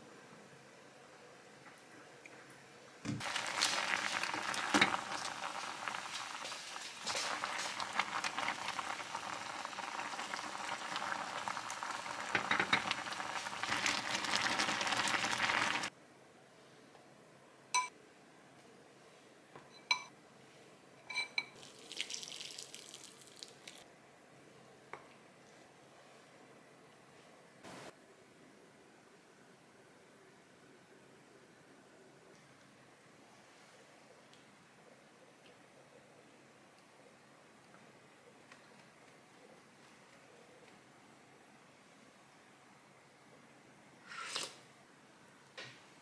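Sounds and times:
soup boiling and bubbling: 3.2s - 15.9s, 21.5s - 23.8s.

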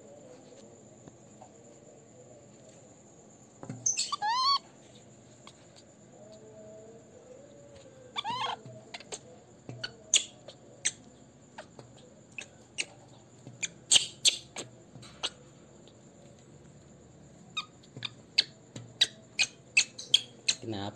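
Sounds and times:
baby monkey squeaking: 3.8s - 4.6s, 8.2s - 9.2s, 9.8s - 11.0s, 13.6s - 14.6s, 17.5s - 20.6s.

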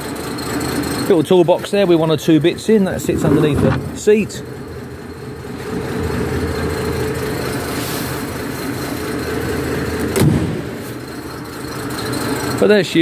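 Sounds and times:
car engine idling: 0.0s - 13.0s
thump: 10.2s - 10.7s.

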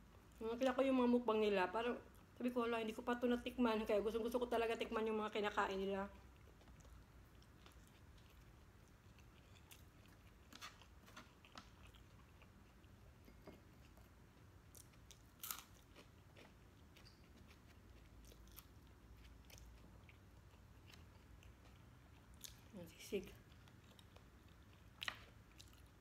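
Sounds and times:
close-up chewing: 6.0s - 26.0s.

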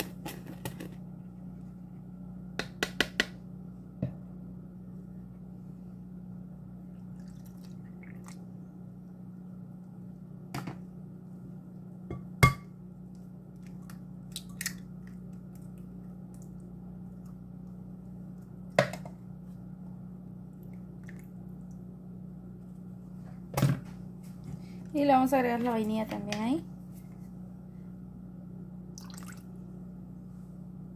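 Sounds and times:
low hum: 0.0s - 30.9s.

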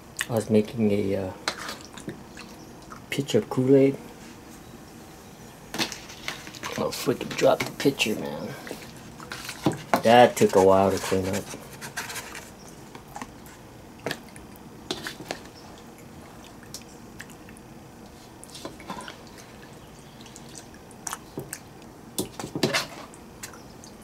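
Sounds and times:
wet squelches of food: 1.5s - 3.2s, 12.5s - 24.0s.

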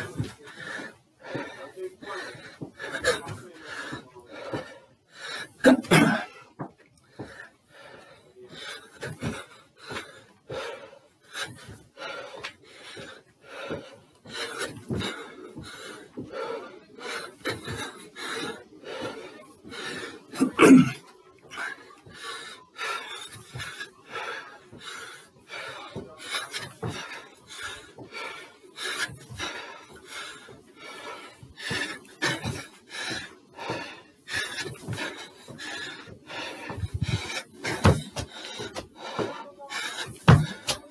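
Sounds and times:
man panting hard: 0.0s - 40.9s
feet landing on step: 29.0s - 40.9s.

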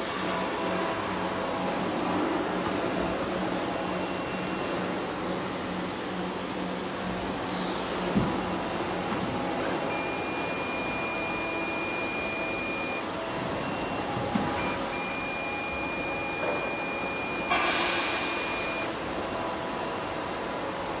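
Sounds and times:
multimeter continuity beep: 9.9s - 19.0s.

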